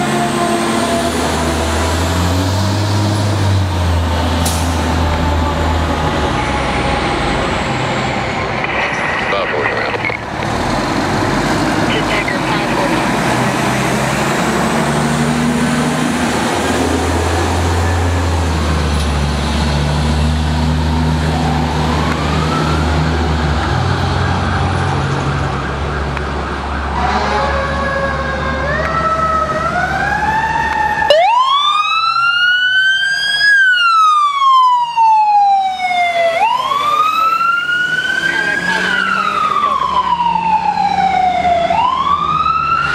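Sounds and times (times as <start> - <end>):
fire engine running loudly: 0.0 - 42.9
ambulance electronic siren wailing: 20.6 - 23.3, 24.1 - 42.9.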